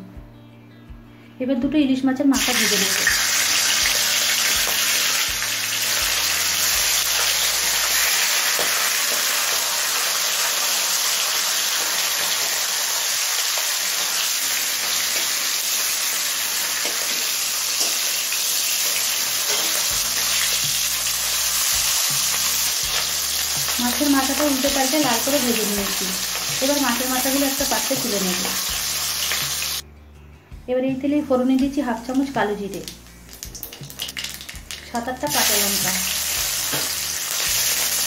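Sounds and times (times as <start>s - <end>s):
fish sizzling in hot oil: 2.4s - 29.8s, 32.7s - 38.0s.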